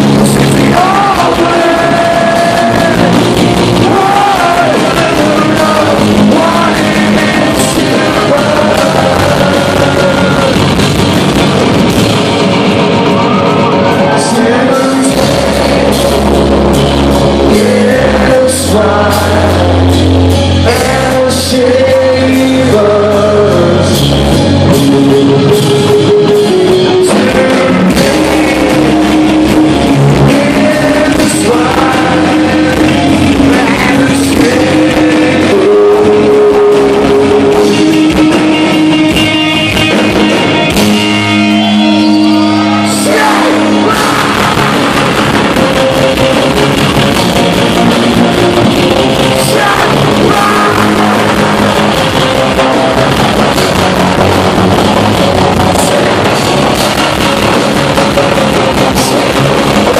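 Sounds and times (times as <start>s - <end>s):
person singing lead vocal: 0.0s - 11.4s, 13.2s - 40.2s, 41.5s - 46.9s, 47.6s - 57.4s, 58.7s - 59.9s
live rock band playing: 0.0s - 59.9s.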